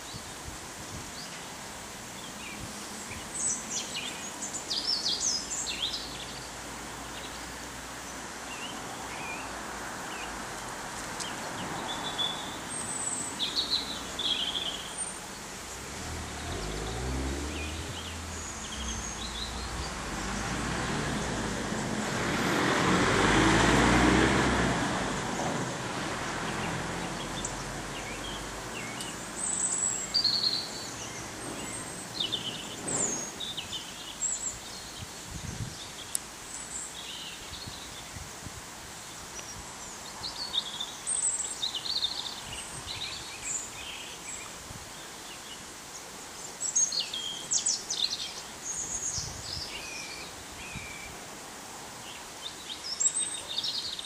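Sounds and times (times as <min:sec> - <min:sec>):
small birds chirping: 0:00.0 - 0:22.6, 0:26.5 - 0:51.4, 0:52.0 - 0:54.0
broad rushing noise and rumble: 0:15.5 - 0:29.7, 0:30.4 - 0:36.0.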